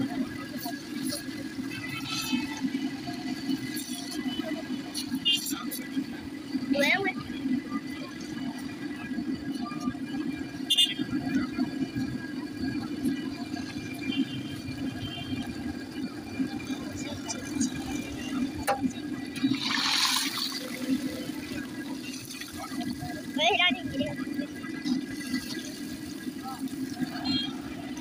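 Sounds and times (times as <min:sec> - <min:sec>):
oil bubbling and sizzling: 0:13.4 - 0:28.0.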